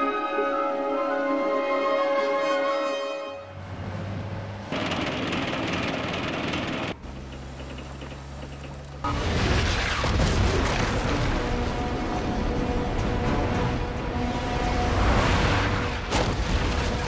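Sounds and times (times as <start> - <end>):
vehicle engine hum: 3.5 - 16.1.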